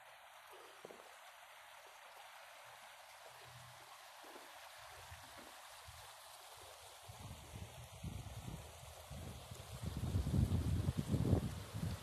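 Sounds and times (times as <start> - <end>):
floodwater rushing: 0.0 - 12.0
wind buffeting microphone: 7.1 - 12.0.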